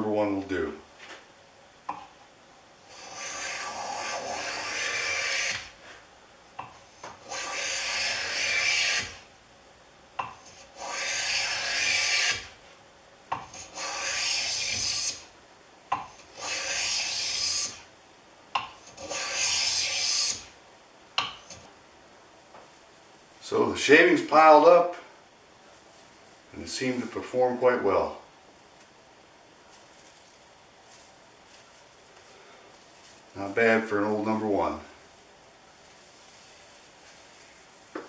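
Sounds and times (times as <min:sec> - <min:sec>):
hand plane shaving wood: 0:02.9 - 0:05.7, 0:07.1 - 0:09.2, 0:10.5 - 0:12.5, 0:13.5 - 0:15.2, 0:16.3 - 0:17.8, 0:19.0 - 0:20.4.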